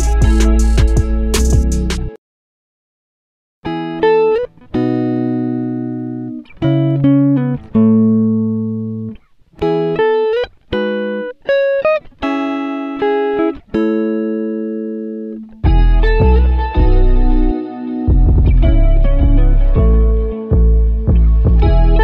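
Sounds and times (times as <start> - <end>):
plucked melody: 0.0 - 2.2, 12.2 - 22.0.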